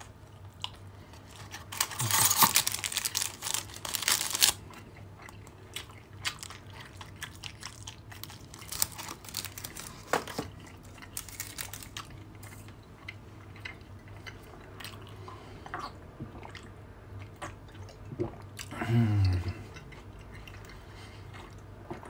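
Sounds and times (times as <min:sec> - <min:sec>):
chocolate biting and chewing: 0:00.6 - 0:15.1
wrapper crinkling: 0:01.2 - 0:04.6, 0:07.6 - 0:10.5, 0:11.1 - 0:12.1.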